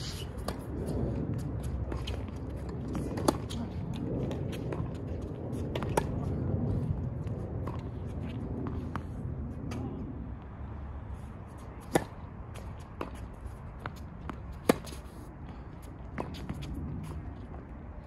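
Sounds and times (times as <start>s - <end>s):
tennis ball bouncing: 2.9s - 3.6s, 11.8s - 15.2s
tennis ball struck by racket: 11.8s - 12.2s.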